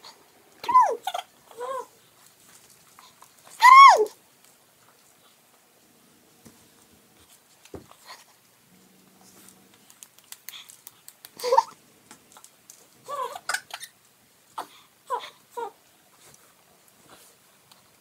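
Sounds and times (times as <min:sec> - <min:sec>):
baby giggling and squealing: 0:11.4 - 0:11.8, 0:13.1 - 0:14.0.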